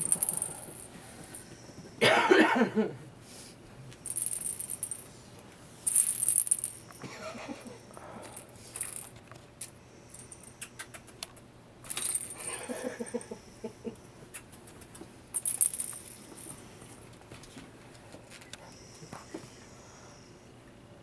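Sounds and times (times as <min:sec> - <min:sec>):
plastic balls rattling: 0:00.0 - 0:00.9, 0:04.0 - 0:05.1, 0:05.8 - 0:06.9, 0:11.8 - 0:12.4, 0:15.4 - 0:16.6.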